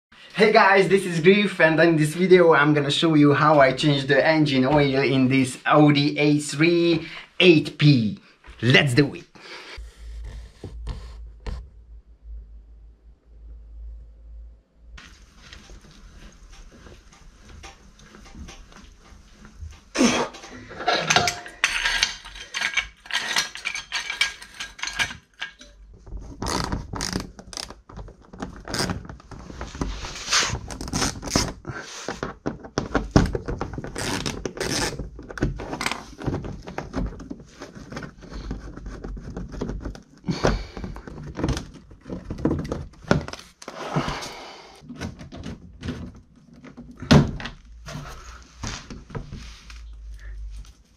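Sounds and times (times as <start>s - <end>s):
car jack metal clanks: 20.7s - 22.0s.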